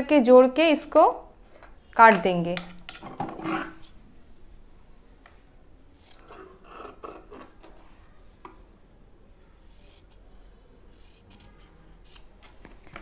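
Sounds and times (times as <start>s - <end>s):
scissors cutting fabric: 5.8s - 7.6s, 9.4s - 12.4s.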